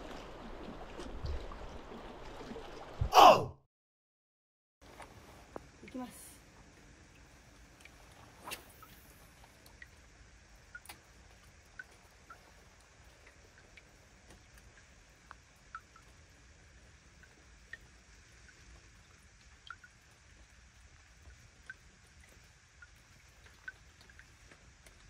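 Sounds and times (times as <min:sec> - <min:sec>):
water lapping among rocks: 0:00.0 - 0:03.1.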